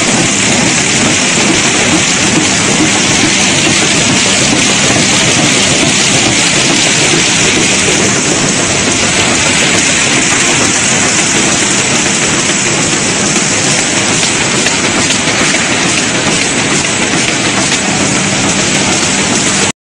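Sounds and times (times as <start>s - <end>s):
machine belts rushing hiss: 0.0s - 19.7s.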